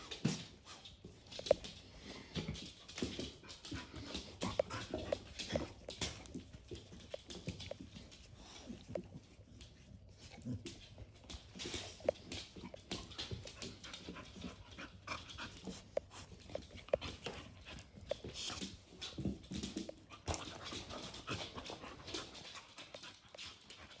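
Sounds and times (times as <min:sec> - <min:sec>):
claws clicking on hard floor: 0:00.1 - 0:24.0
dogs panting hard: 0:01.4 - 0:09.3, 0:11.6 - 0:24.0.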